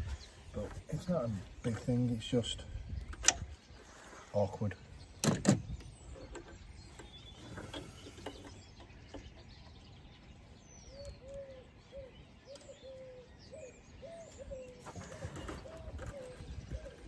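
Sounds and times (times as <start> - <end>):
pigeon cooing: 10.9 - 17.0.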